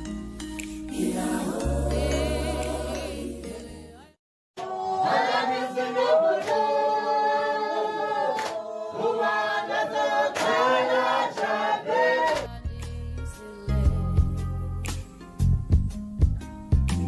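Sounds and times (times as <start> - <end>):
group singing a cappella: 0.8 - 14.5.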